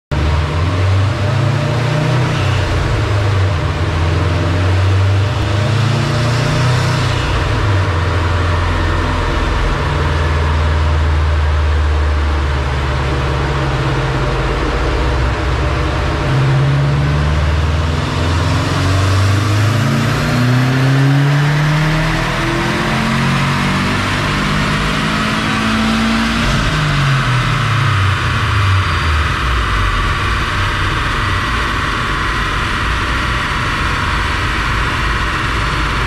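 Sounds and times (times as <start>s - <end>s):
car engine revving on dyno: 0.1s - 36.0s.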